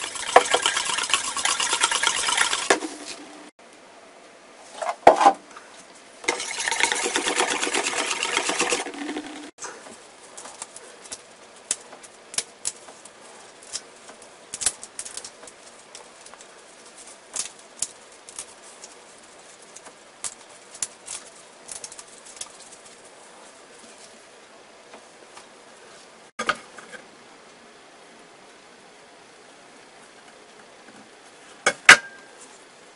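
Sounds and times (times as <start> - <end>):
batter mixed in metal bowl: 0.0 - 3.3, 6.2 - 9.8
prawn shells cracking and peeling: 10.4 - 22.8.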